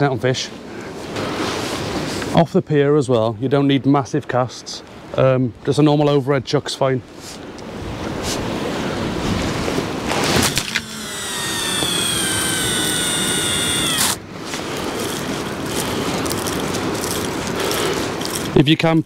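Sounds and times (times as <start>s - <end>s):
fishing reel line whine: 10.6s - 14.2s.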